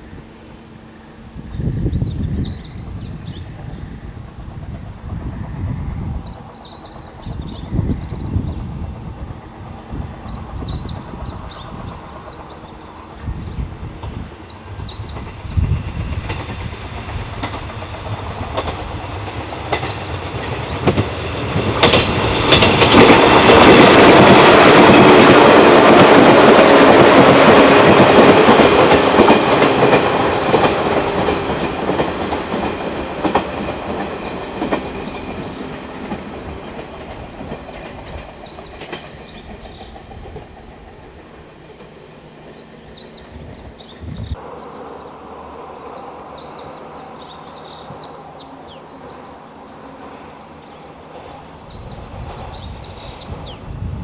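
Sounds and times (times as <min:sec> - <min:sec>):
electric train passing: 0:00.0 - 0:54.0
bird chirping: 0:01.4 - 0:04.0, 0:06.2 - 0:08.7, 0:10.2 - 0:13.8, 0:14.4 - 0:15.8, 0:19.4 - 0:21.1, 0:33.7 - 0:35.8, 0:37.4 - 0:40.1, 0:42.5 - 0:44.9, 0:45.9 - 0:53.7
wheels clacking over rail joints: 0:04.6 - 0:43.8.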